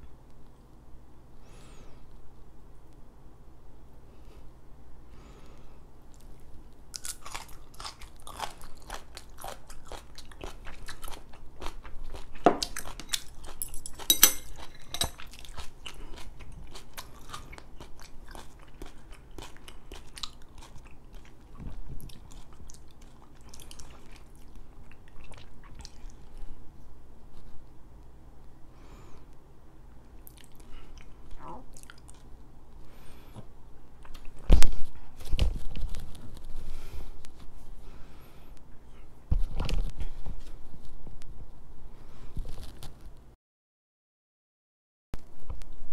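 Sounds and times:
crunchy food chewing: 6.1 - 26.6, 30.2 - 32.4.

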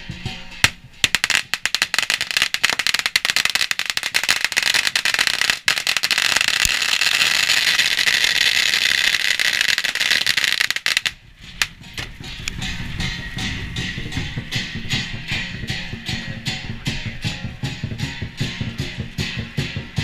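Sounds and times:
firecrackers crackling: 0.6 - 15.8.

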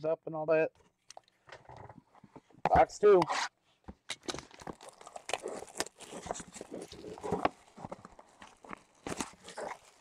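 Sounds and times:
card packs being handled: 4.2 - 10.0.

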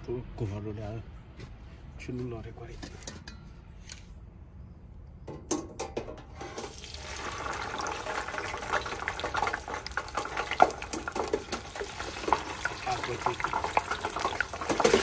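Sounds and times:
potatoes sizzling in hot oil: 6.6 - 15.0.

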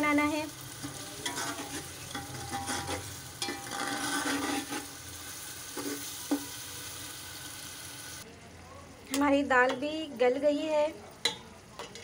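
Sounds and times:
food sizzling in oil: 0.0 - 12.0
spoon scraping metal pot: 0.8 - 5.0.

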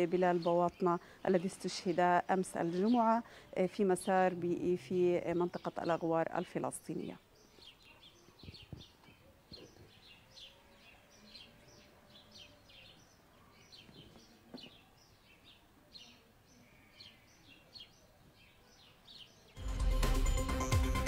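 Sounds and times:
small birds chirping: 0.0 - 19.6.

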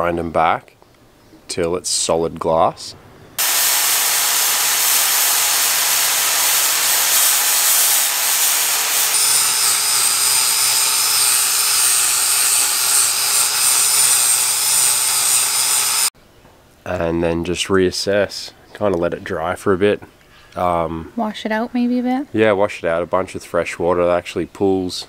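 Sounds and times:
angle grinder grinding fibreglass: 3.4 - 16.1.

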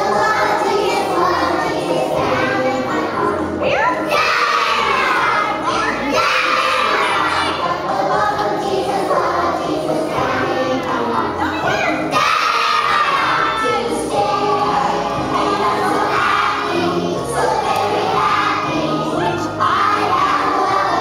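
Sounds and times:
children singing together: 0.0 - 21.0.

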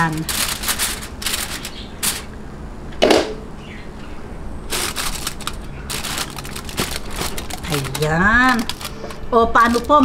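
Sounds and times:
aluminium foil crinkling: 0.0 - 2.3, 4.7 - 10.0.

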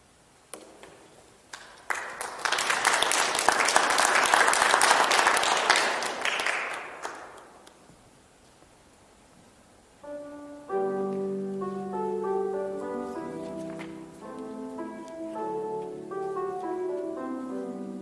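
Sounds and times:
audience applauding: 1.5 - 7.8.

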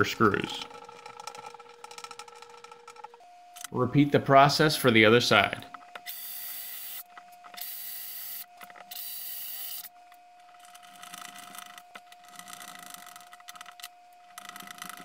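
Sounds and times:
cordless drill running: 6.0 - 7.0.

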